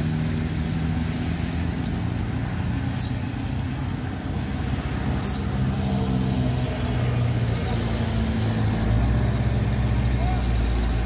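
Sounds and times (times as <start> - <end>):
diesel truck engine droning: 0.0 - 11.0.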